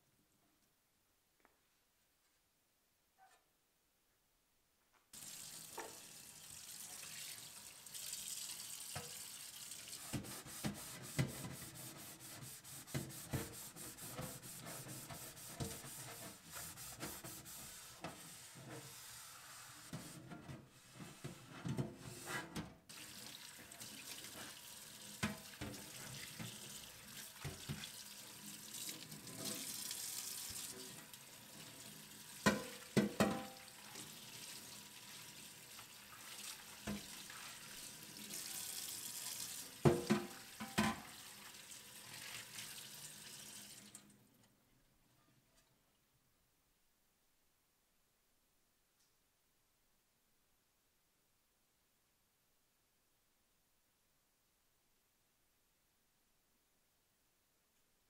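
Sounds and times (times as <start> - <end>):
tap water running into sink: 5.2 - 11.5, 22.9 - 44.1
plate knocking against sink: 32.5 - 33.5, 39.9 - 41.0.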